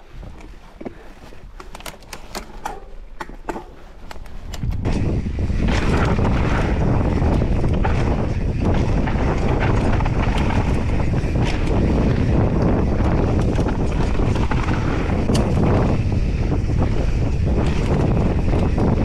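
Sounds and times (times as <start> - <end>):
bike rattling clicks: 1.4 - 19.0
tyres rolling on dirt: 3.3 - 19.0
wind buffeting microphone: 3.9 - 19.0.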